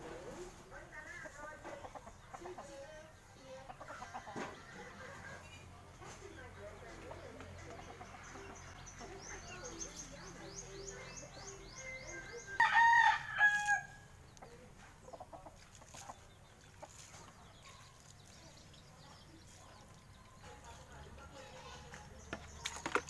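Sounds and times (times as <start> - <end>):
hens clucking: 0.0 - 10.2, 14.3 - 20.9
rooster crowing: 12.6 - 14.0.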